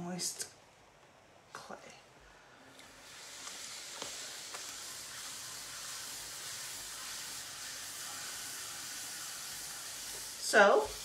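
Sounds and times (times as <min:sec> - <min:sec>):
wet hiss of clay on pottery wheel: 0:02.5 - 0:11.0.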